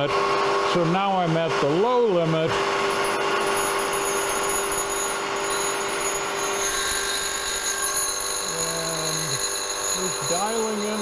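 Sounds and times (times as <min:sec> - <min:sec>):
milling saw cutting aluminum: 0:00.0 - 0:11.0.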